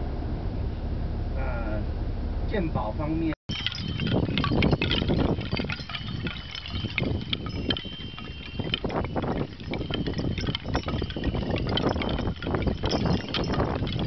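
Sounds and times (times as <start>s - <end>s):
small metal bells tinkling: 3.5s - 14.0s.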